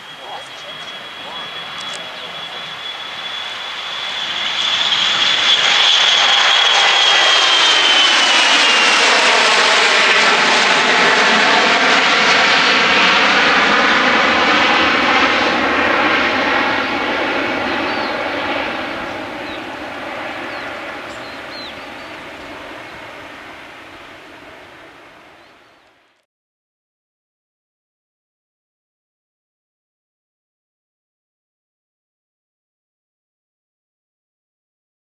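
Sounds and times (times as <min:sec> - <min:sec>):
jet engines roaring on takeoff: 0:00.0 - 0:26.2.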